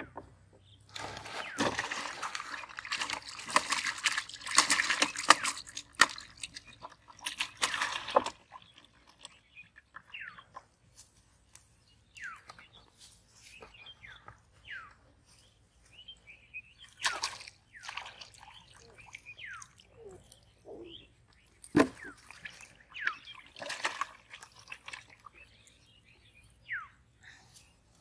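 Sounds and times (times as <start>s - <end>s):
water splashing: 1.0s - 9.5s, 16.9s - 20.4s, 21.6s - 25.6s
bird chirps: 8.1s - 10.8s, 11.8s - 23.7s, 24.9s - 27.9s.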